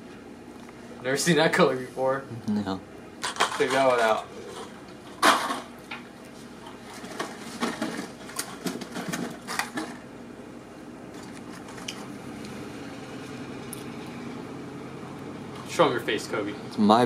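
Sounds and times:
plastic packs clicking and crinkling: 7.0s - 10.0s.

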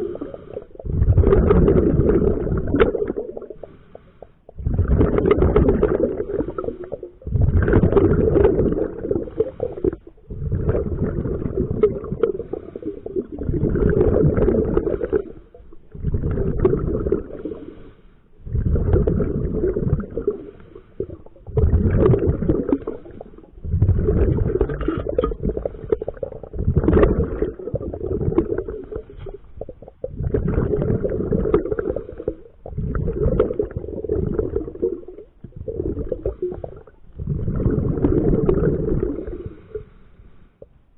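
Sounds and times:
diver breathing through regulator: 0.0s - 1.6s, 3.5s - 4.7s, 8.8s - 21.5s, 27.4s - 29.6s, 30.3s - 33.4s, 35.7s - 40.7s
bubbles rumbling and gurgling: 0.0s - 40.0s.

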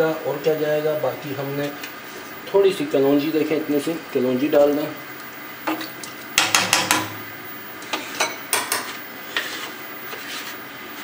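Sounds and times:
metal spoon tapping on cookware: 6.4s - 7.2s, 8.2s - 8.9s.

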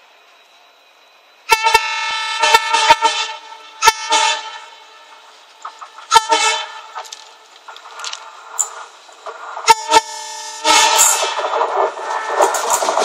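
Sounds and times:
locomotive horn blasts: 1.5s - 5.3s, 6.0s - 7.1s, 9.6s - 12.9s.

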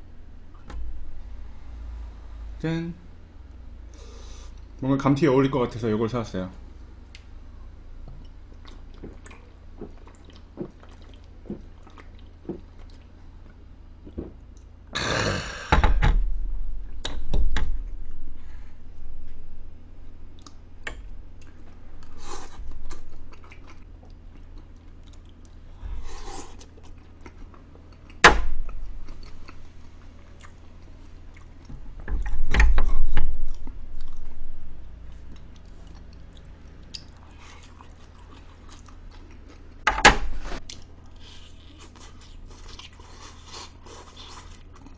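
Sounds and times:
person chewing: 8.2s - 15.3s, 20.2s - 31.7s, 35.0s - 39.8s, 40.6s - 44.9s.

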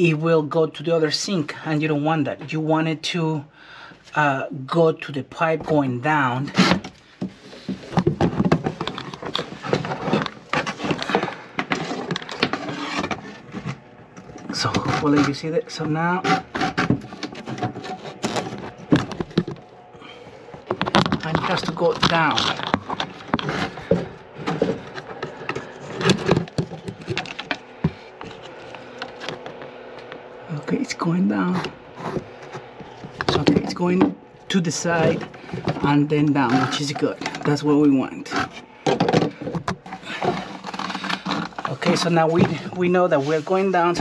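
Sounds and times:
drain cable scraping in pipe: 8.6s - 29.6s, 31.3s - 44.0s.

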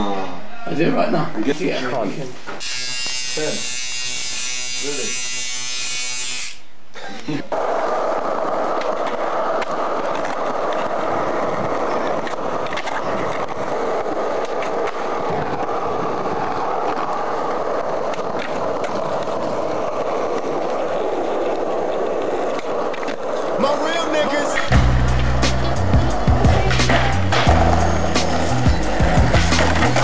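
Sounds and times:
skateboard wheels rolling on pavement: 6.8s - 30.0s
skateboard clacks: 7.5s - 30.0s.

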